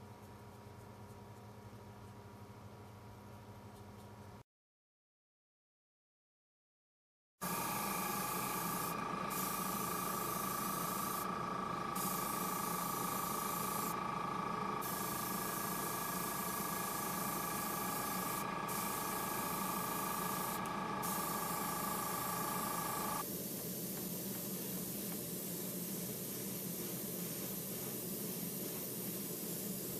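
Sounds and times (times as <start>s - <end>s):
airbrush hissing: 7.4s - 29.9s
steady motor hum: 7.4s - 29.9s.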